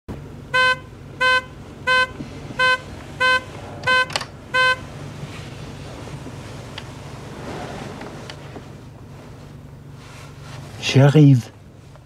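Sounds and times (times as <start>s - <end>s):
short electronic beeps: 0.6s - 4.8s.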